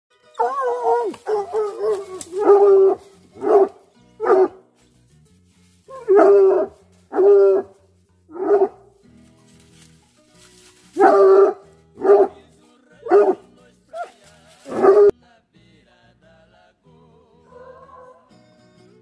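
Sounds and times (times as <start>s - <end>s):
hound baying: 0.3s - 4.7s, 5.9s - 9.0s, 10.8s - 15.1s, 17.4s - 18.4s.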